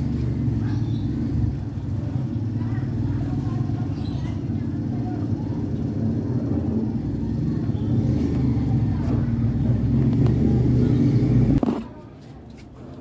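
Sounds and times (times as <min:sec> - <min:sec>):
vehicle engine rumbling: 0:00.0 - 0:13.0.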